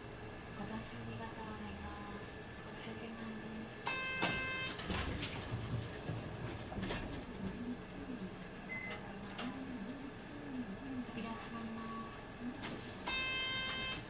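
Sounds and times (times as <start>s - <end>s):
bus rumble: 0.0s - 13.7s
clicks and knocks in cabin: 3.9s - 7.6s.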